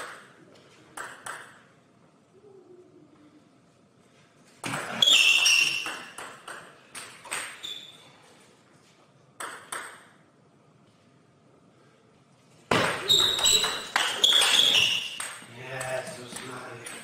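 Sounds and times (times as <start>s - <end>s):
table tennis ball pings: 4.8s - 8.0s, 9.4s - 10.2s, 12.7s - 17.0s.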